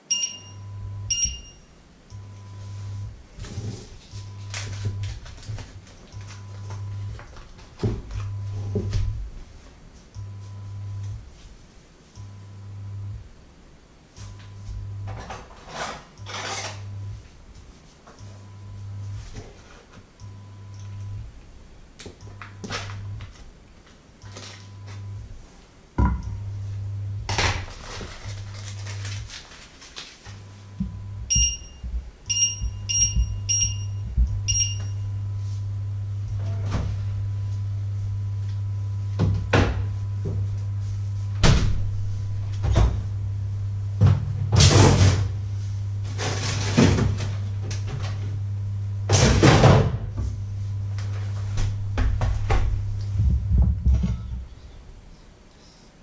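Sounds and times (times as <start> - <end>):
touch control beeps: 0.0 - 2.8, 31.2 - 35.2
electric hob humming: 0.0 - 56.0.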